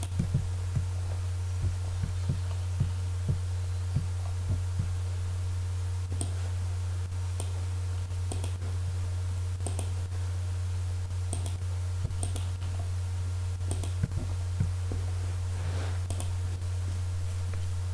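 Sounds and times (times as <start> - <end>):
low electrical hum: 0.0 - 17.9
computer mouse clicking: 6.2 - 6.4, 7.4 - 7.6, 8.3 - 8.6, 9.6 - 10.0, 11.3 - 11.6, 12.2 - 12.7, 13.7 - 14.1, 16.1 - 16.4.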